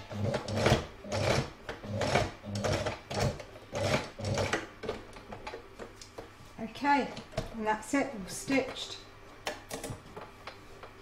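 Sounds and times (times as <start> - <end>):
sewing machine stitching: 0.1 - 4.6.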